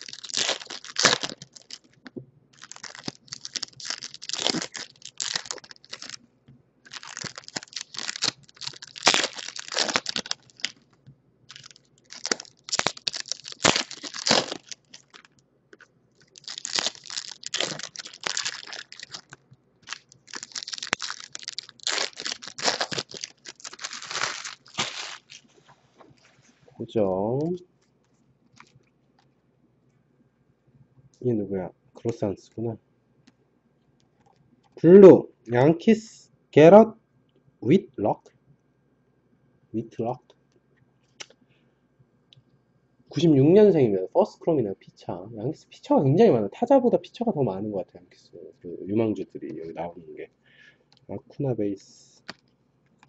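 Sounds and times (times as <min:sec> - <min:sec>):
foil wrappers crinkling: 0:00.0 - 0:06.2, 0:06.9 - 0:10.9, 0:11.5 - 0:25.7.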